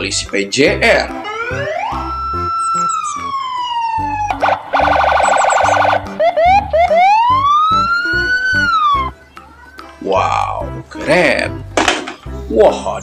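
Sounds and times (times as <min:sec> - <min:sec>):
police siren wailing and yelping: 0:01.2 - 0:09.2.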